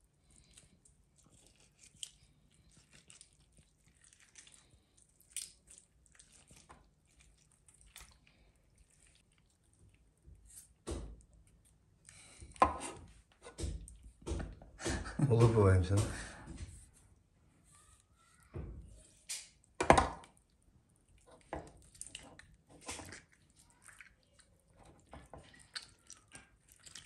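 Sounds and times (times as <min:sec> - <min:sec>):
wet squishing: 0:00.0 - 0:12.6, 0:18.1 - 0:27.0.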